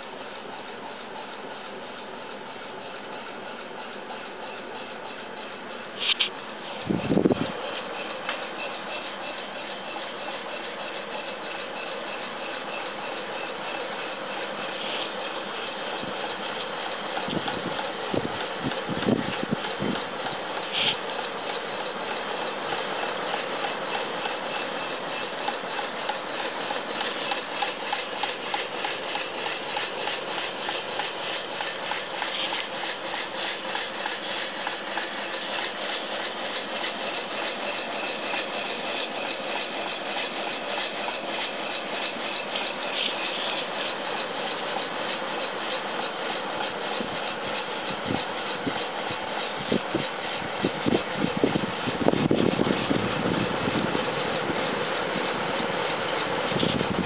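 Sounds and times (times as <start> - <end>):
engine fan mechanical ticking: 0.0 - 57.0.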